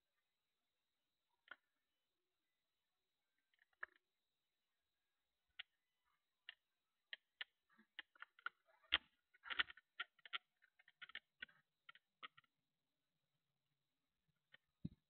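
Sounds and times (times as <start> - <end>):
faint clicks and taps: 3.4 - 4.1, 5.5 - 12.5, 14.4 - 15.0.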